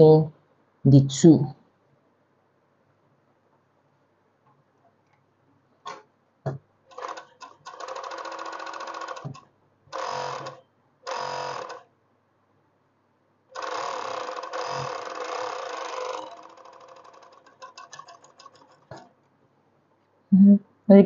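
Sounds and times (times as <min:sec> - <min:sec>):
overlock machine stitching fabric: 0:06.9 - 0:11.9, 0:13.6 - 0:19.1.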